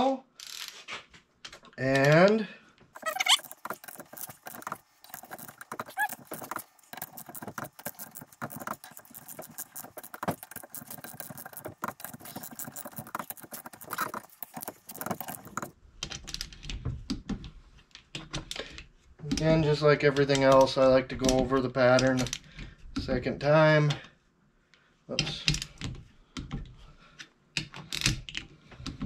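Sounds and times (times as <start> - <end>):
ratcheting torque wrench clicking: 3.0 - 15.7.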